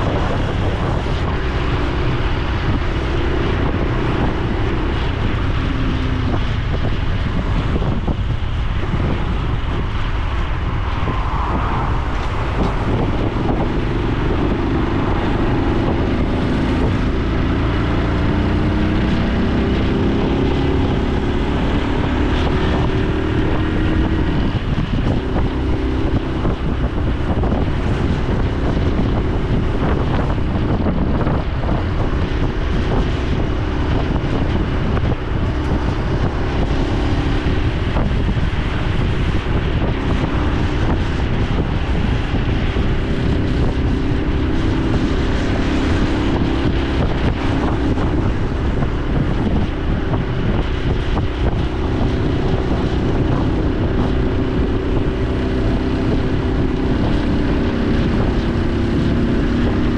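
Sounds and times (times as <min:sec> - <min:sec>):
motorcycle engine running: 0:00.0 - 0:10.5, 0:12.1 - 0:59.9
wind rushing over microphone: 0:00.0 - 0:59.9.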